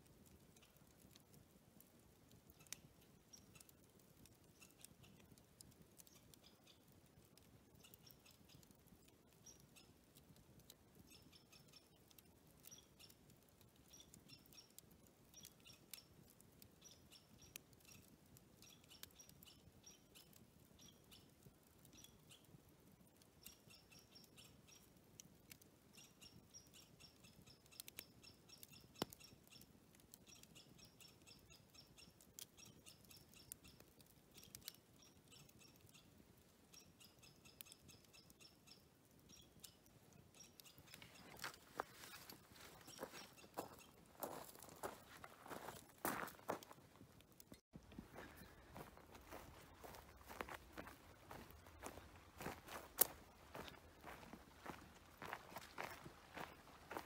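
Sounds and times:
light ticks: 0.2 - 22.5, 23.4 - 36.1
faint bird chirping: 2.1 - 46.8, 47.4 - 57.0.

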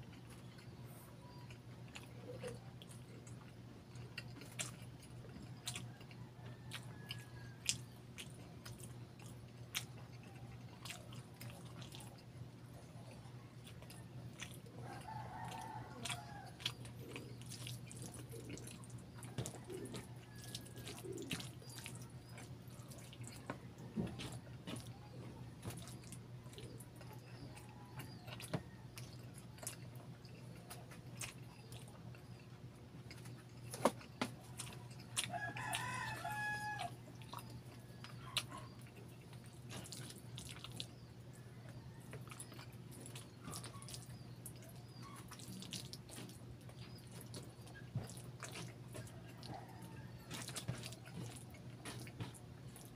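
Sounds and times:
wet chewing and lip-smacking: 0.0 - 52.9
rooster crowing: 14.8 - 16.7, 34.6 - 37.3, 49.1 - 51.2.

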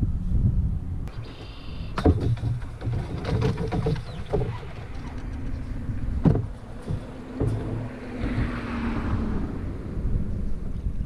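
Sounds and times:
wind rumbling on microphone: 0.0 - 11.0
water swishing: 1.2 - 10.2
knocks on canoe hull: 2.0 - 4.7, 6.2 - 8.6.

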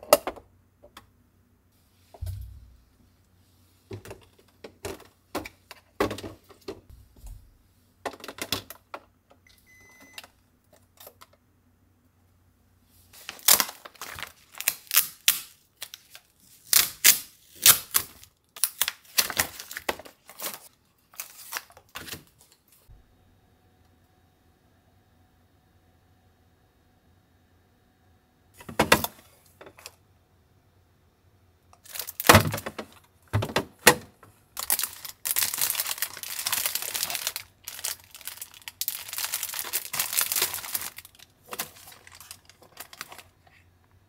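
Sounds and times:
plastic containers clicking and knocking: 3.9 - 6.9, 8.0 - 9.2, 32.0 - 34.3.

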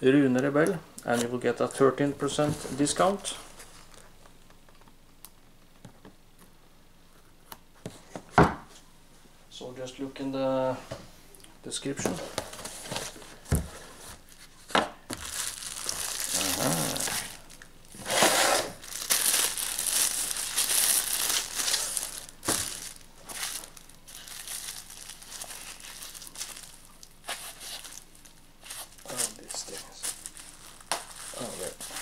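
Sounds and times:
plastic packaging crinkling: 14.0 - 32.0.

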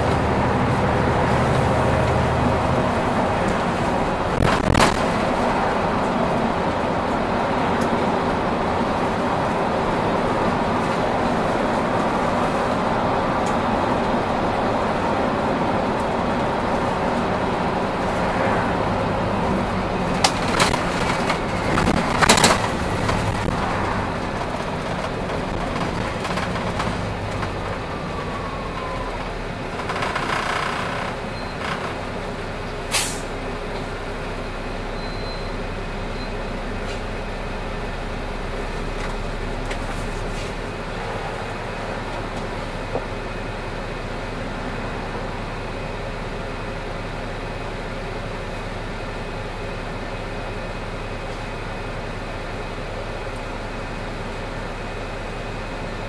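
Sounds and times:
bus engine and road noise: 0.0 - 56.0
short hiss: 32.9 - 33.3.

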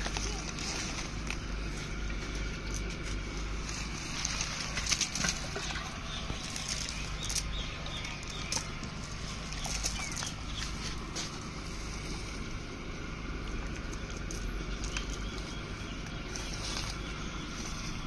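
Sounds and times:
rustle of dry leaves: 0.0 - 18.0
fish flapping and splashing: 3.9 - 11.3.

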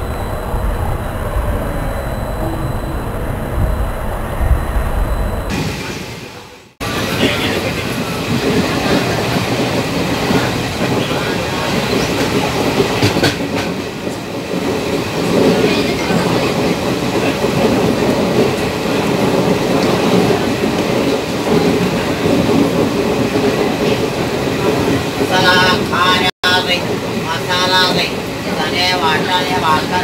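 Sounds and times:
train wheels on track: 0.0 - 30.0.

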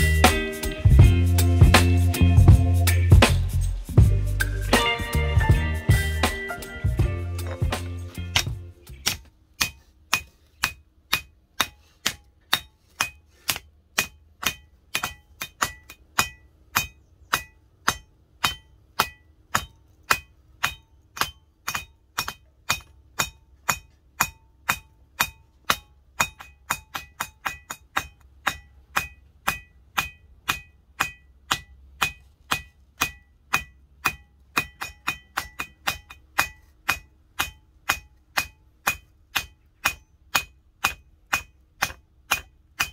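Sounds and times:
hammer striking steel on anvil: 4.4 - 42.9.

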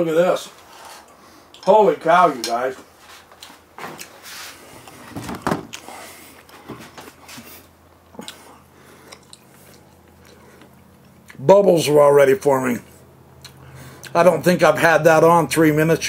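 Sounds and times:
camera handling knocks and rustles: 5.0 - 5.7.

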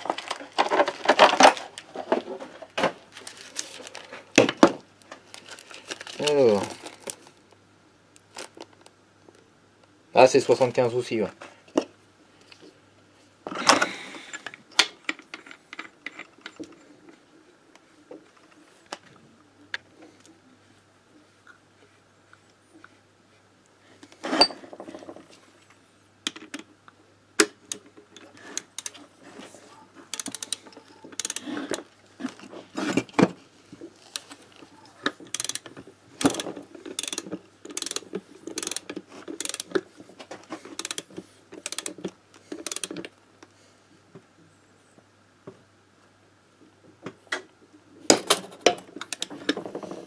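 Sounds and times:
torque wrench ratchet clicking: 30.1 - 30.6, 31.2 - 31.4, 35.3 - 35.6, 37.0 - 38.8, 39.4 - 39.7, 40.8 - 41.0, 41.6 - 42.0, 42.6 - 42.9.

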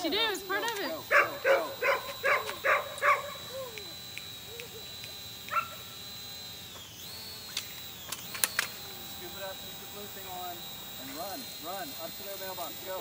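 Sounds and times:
dog barking: 1.1 - 3.4, 5.5 - 5.8.

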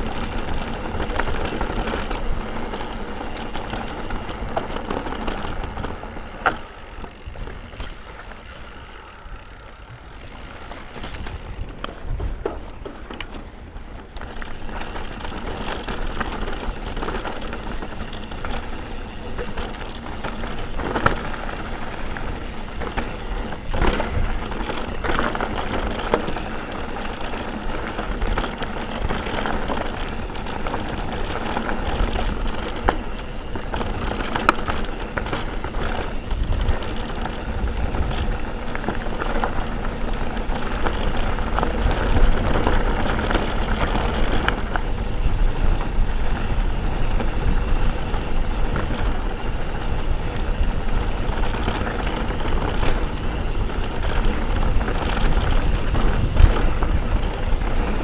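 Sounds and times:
bike tyre rumble and rattle: 0.0 - 58.0
wind buffeting microphone: 50.0 - 58.0.

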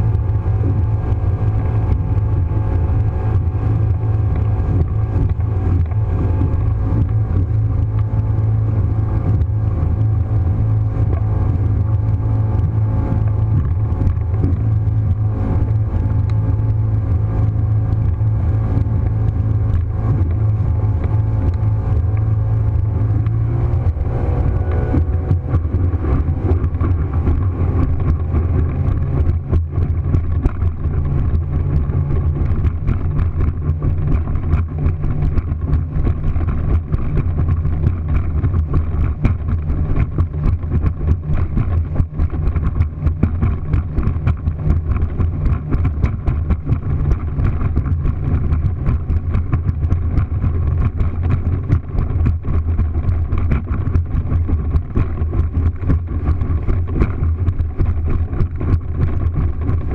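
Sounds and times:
motorboat engine drone: 0.0 - 59.9.

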